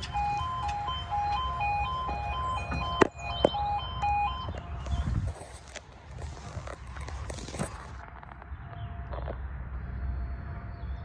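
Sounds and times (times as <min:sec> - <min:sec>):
two-tone yodel alarm: 0:00.0 - 0:04.7.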